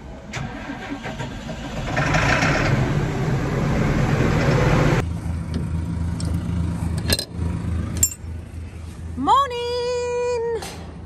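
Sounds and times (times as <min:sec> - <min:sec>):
tractor diesel engine idling: 0:00.2 - 0:02.3.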